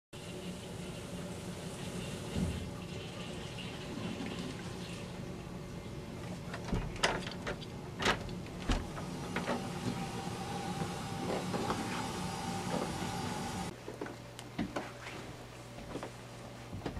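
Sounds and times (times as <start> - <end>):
water running: 0.2 - 13.7
door unlatching and opening: 6.5 - 9.9.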